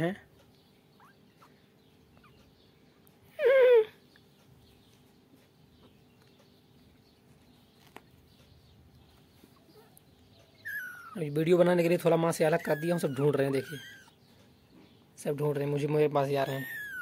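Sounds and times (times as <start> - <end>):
kitten mewing: 12.5 - 14.2, 16.5 - 17.0.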